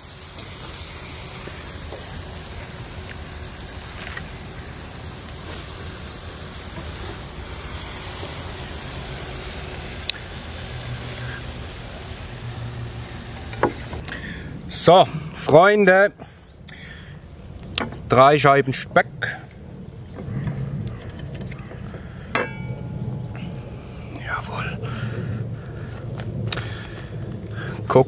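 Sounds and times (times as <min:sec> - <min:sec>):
even hiss: 0:00.0 - 0:20.9, 0:21.8 - 0:28.0
low rumble: 0:16.6 - 0:28.0.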